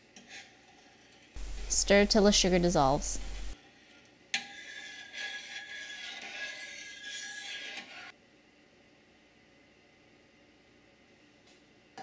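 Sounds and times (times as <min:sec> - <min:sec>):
metal spoon scraping saucepan: 0:00.1 - 0:02.6, 0:03.4 - 0:08.1.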